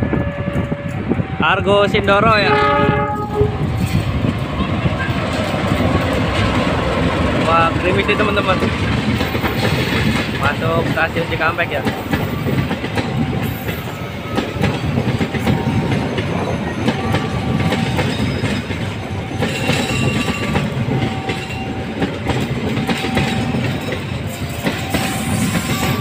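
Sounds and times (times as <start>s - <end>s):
clickety-clack over rail joints: 0.0s - 26.0s
train wheels rumbling: 0.0s - 26.0s
high wheel squeals: 24.2s - 26.0s.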